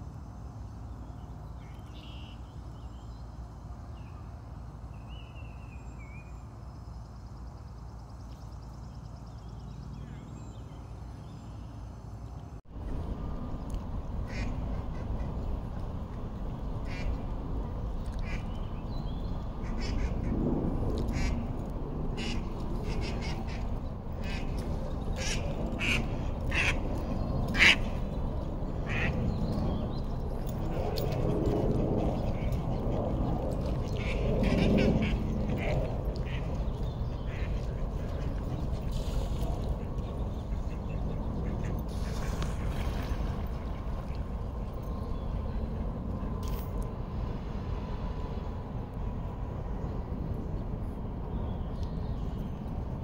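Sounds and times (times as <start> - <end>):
low background rumble: 0.0 - 53.0
ducks quacking: 25.2 - 26.8, 27.5 - 28.0.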